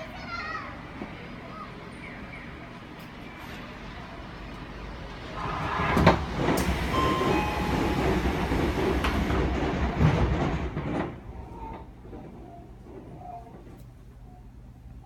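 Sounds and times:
train doors sliding with tones: 0.9s - 15.0s
train doors shutting knock: 5.2s - 12.2s.

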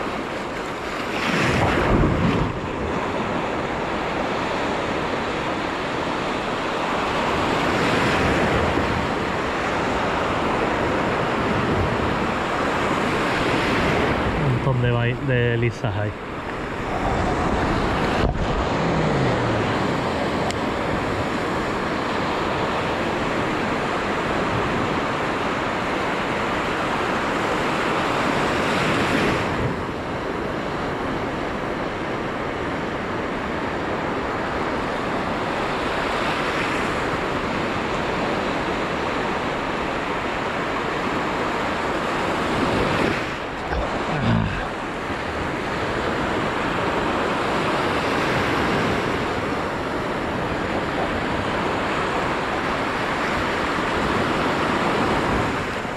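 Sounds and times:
wind on microphone: 0.0s - 25.3s, 41.6s - 55.9s
sea surf breaking on shore: 0.0s - 55.9s.

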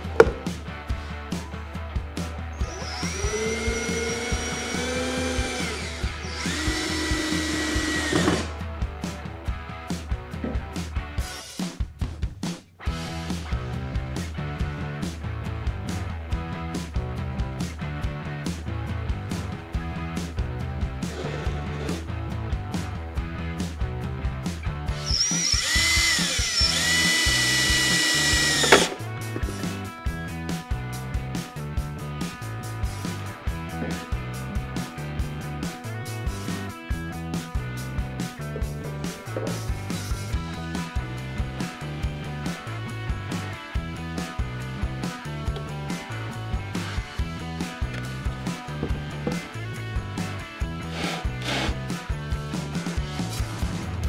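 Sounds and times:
background music with steady beat: 0.0s - 54.0s
power drill driving screws: 2.6s - 8.5s, 21.1s - 22.0s, 25.0s - 29.0s, 50.9s - 51.8s.

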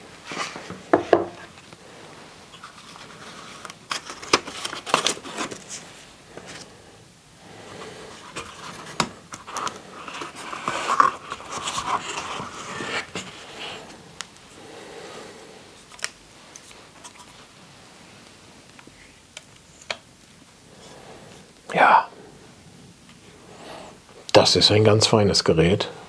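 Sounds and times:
rustling and scraping of saw box: 7.7s - 14.0s.

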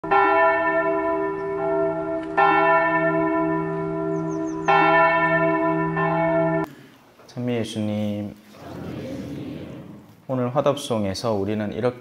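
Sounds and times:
church bell tolling: 0.0s - 6.7s.

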